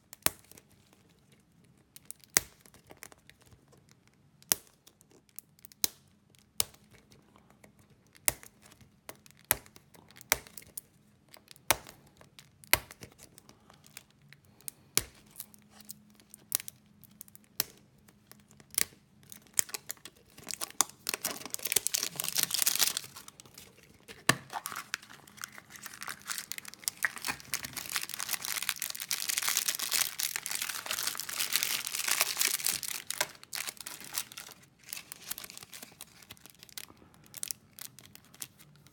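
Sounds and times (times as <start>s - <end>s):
plastic wrapper crinkling and tearing: 0.0s - 38.9s.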